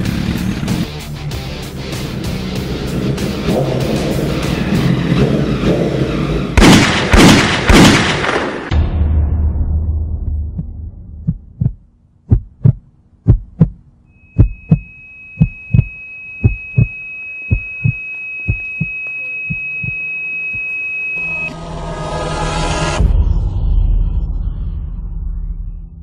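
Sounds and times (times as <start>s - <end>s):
rushing rumble: 0.0s - 14.0s
heartbeat thumps: 10.2s - 20.7s
high ringing tone: 14.0s - 21.6s.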